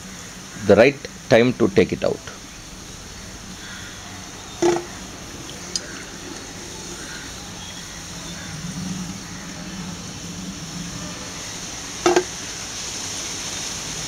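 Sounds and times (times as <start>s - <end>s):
hot oil sizzling: 0.0s - 14.0s
low hum: 2.2s - 12.5s
short knock: 4.6s - 4.9s, 12.1s - 12.3s.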